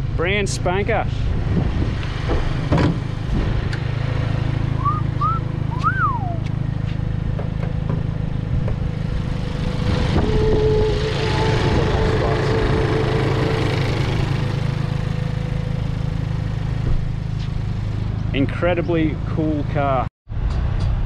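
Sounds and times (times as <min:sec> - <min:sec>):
car engine rumbling: 0:00.0 - 0:21.0
chirping whistles: 0:04.8 - 0:06.5.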